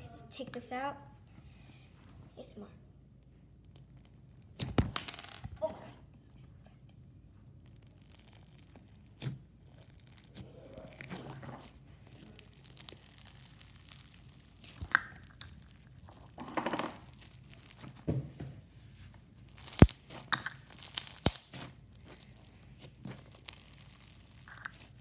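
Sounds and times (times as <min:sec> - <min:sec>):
bead slime crunching: 0:03.4 - 0:04.9, 0:07.4 - 0:18.1, 0:19.2 - 0:25.0
slime popping: 0:07.5 - 0:18.1, 0:19.5 - 0:25.0.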